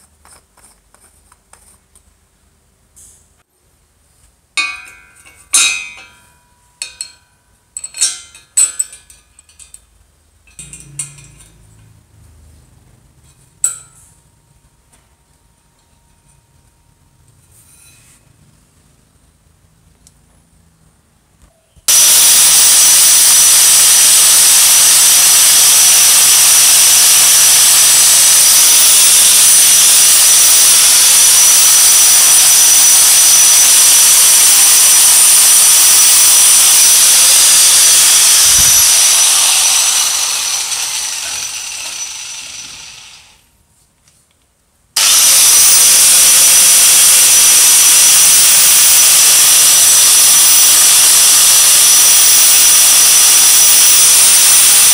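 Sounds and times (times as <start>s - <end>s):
angle grinder high whine: 10.5s - 12.0s, 21.9s - 43.5s, 45.0s - 54.9s.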